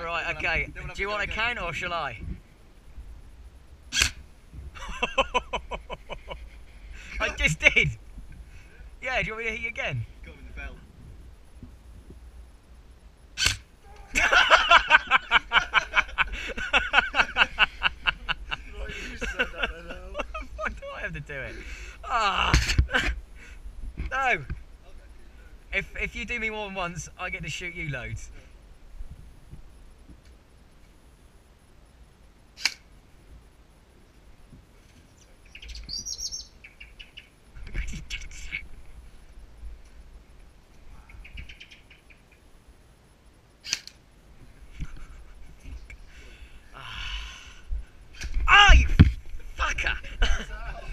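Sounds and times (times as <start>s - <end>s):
birds chirping: 0.0s - 28.5s, 34.9s - 42.6s
toy gun shot: 4.0s - 4.2s, 13.4s - 13.6s, 32.6s - 32.8s
man laughing loudly: 4.8s - 7.9s, 14.1s - 23.2s, 48.5s - 50.9s.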